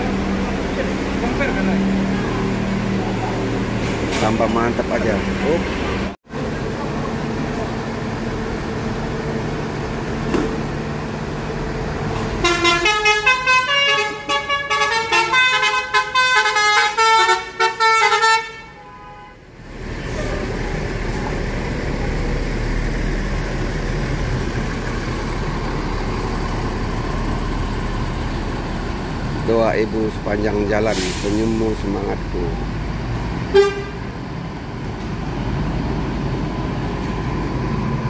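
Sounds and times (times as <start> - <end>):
diesel engine rumbling: 0.0 - 38.0
bus horn playing tune: 12.3 - 19.5, 33.5 - 34.1.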